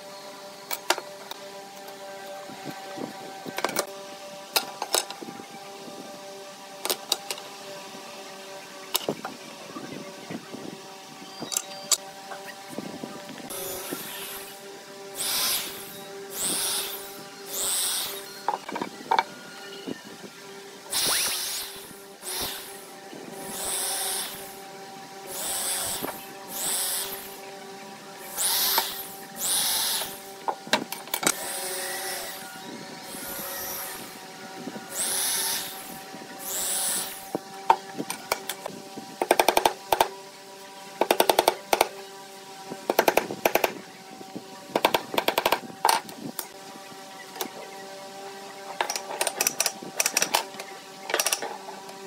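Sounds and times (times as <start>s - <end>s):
cordless drill whirring: 12.8s - 27.4s, 28.2s - 38.7s.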